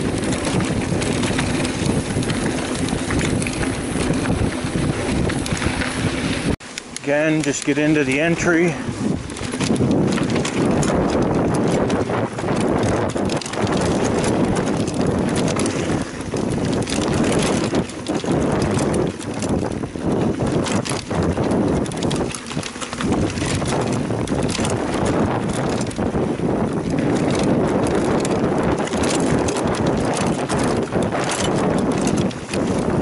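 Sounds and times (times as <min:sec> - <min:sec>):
bike rattling and knocking: 0:00.0 - 0:33.0
tyre and wind rush: 0:00.0 - 0:33.0.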